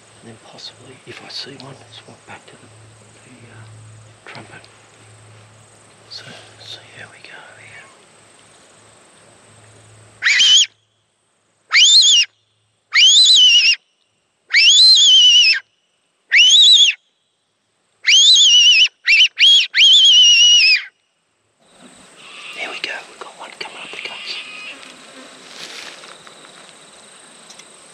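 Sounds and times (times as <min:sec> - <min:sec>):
fox whistle squealing: 0:10.2 - 0:10.8, 0:11.7 - 0:12.3, 0:12.9 - 0:13.8, 0:14.5 - 0:15.6, 0:16.3 - 0:17.0, 0:18.0 - 0:20.9.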